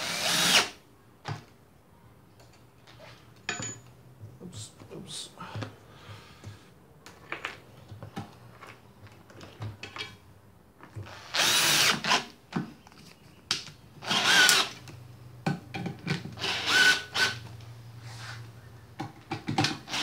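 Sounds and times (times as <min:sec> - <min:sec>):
power drill driving screws: 0:00.0 - 0:00.8, 0:11.0 - 0:12.3, 0:14.0 - 0:14.8, 0:16.4 - 0:17.4, 0:19.6 - 0:20.0
parts clicking and knocking: 0:14.4 - 0:16.4, 0:18.9 - 0:20.0.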